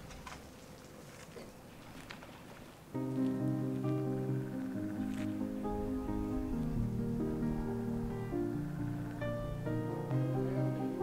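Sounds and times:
instrumental background music: 3.0s - 11.0s.

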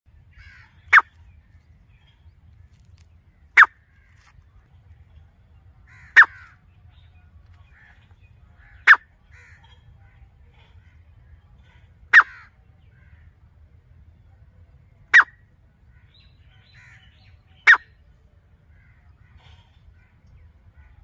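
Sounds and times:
francolin calling: 0.3s - 1.3s, 5.9s - 7.1s, 8.6s - 9.7s, 12.1s - 12.5s, 15.1s - 15.5s, 16.1s - 18.0s.

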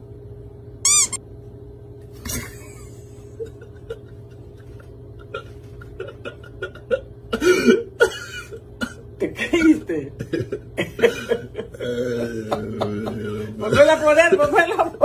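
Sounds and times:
steady electrical hum: 0.0s - 15.0s
high wavering squeak: 0.8s - 1.2s.

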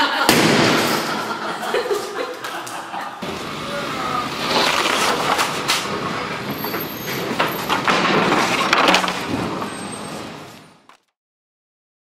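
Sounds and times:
debris crashing into steel dumpster: 4.5s - 9.8s.

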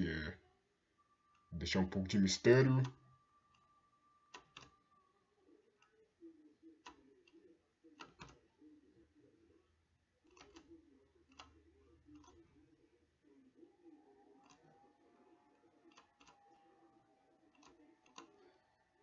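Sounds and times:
computer mouse clicks: 4.4s - 4.8s, 8.0s - 8.4s, 10.3s - 10.7s, 17.5s - 18.4s.

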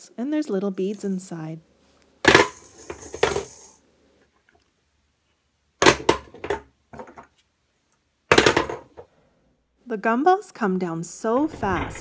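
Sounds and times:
plastic balls clattering down toy: 2.3s - 3.8s, 8.3s - 8.9s.

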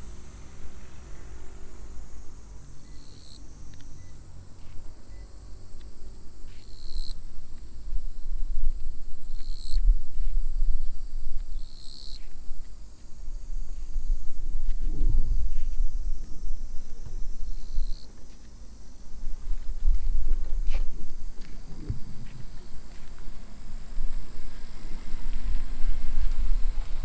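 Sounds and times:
insects droning: 0.0s - 27.0s
loud high insect call: 0.0s - 27.0s
low rumble: 13.2s - 17.7s, 19.1s - 27.0s.

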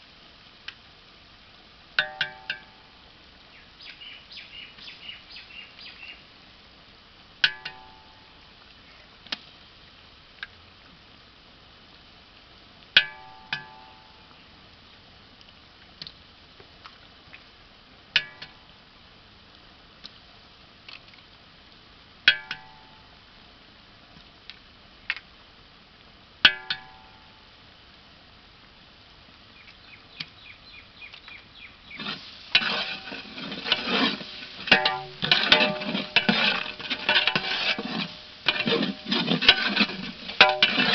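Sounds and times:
ladle stirring and scraping: 31.9s - 40.9s.

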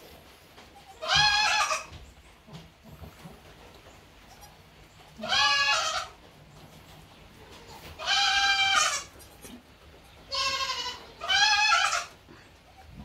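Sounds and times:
goat bleating: 0.7s - 2.0s, 4.2s - 6.2s, 7.5s - 9.6s, 10.2s - 13.0s.

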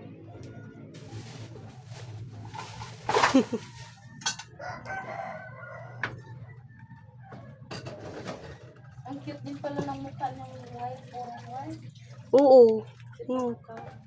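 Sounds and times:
rooster crowing: 3.2s - 9.1s.

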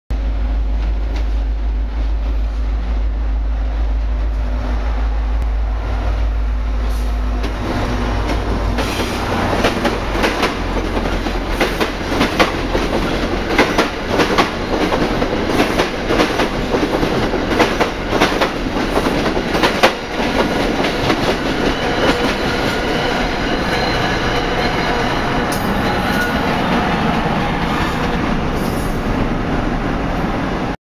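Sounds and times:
diesel locomotive engine rumbling: 0.1s - 30.8s
train wheels clacking over rail joints: 7.4s - 26.9s.

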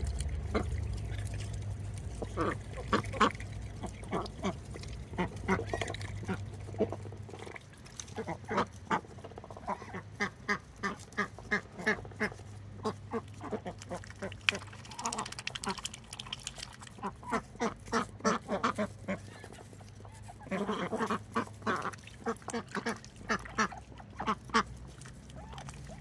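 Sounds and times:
low hum: 0.0s - 10.2s
ducks quacking: 0.0s - 26.0s.

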